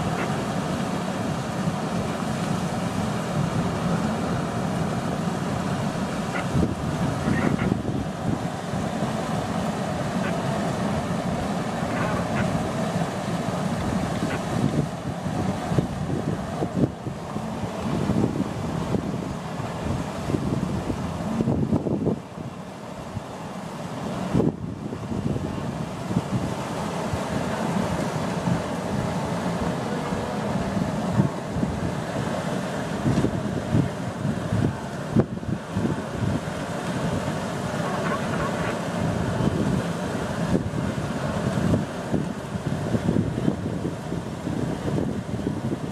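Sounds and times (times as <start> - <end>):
wind buffeting microphone: 0.0 - 23.4, 24.0 - 45.9
water churning and splashing: 0.0 - 45.9
wildebeest honking grunts: 7.2 - 7.8, 37.8 - 38.8.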